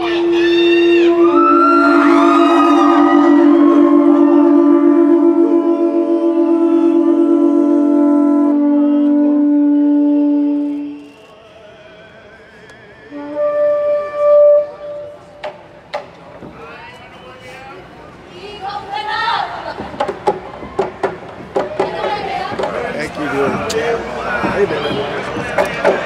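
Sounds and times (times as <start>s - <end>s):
conch shells long notes: 0.0s - 11.1s, 13.1s - 15.3s
short high conch blast: 0.0s - 11.3s, 13.1s - 15.2s.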